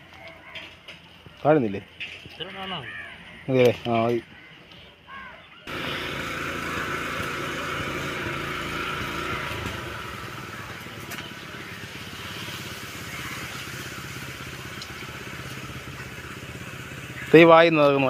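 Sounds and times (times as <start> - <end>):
hiss: 5.7 - 17.4
small engine humming: 5.7 - 18.0.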